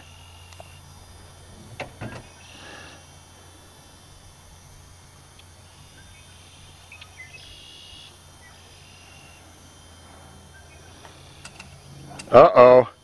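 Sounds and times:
low steady hum: 0.0 - 13.0
small ticks: 0.3 - 0.8, 5.3 - 9.4, 10.8 - 12.4.

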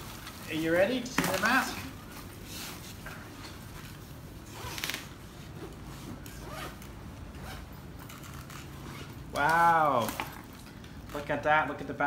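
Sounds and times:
cloth rustling: 0.0 - 11.1
zipper rasping open: 4.4 - 9.4.

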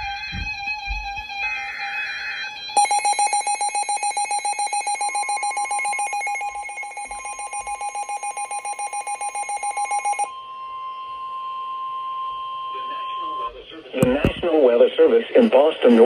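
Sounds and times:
radio alert alarm beeping rapidly: 2.8 - 10.3
steady warning alarm tone: 2.8 - 10.4.

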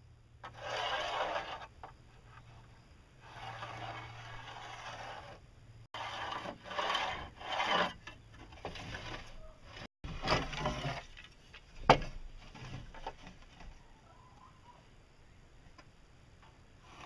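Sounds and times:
pencil scraping on wood: 0.4 - 1.7
spirit level rubbing on board: 0.4 - 8.1.

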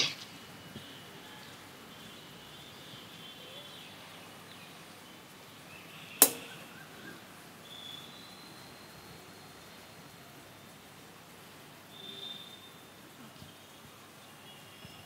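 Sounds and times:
low background hiss: 0.0 - 15.0
sharp click: 6.2 - 6.5.

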